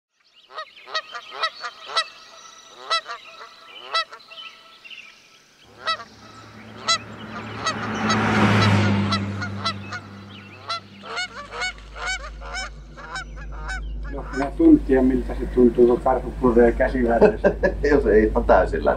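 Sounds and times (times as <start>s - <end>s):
geese honking: 0.5s - 4.8s, 5.7s - 17.7s
rushing noise and low hum: 5.7s - 18.9s.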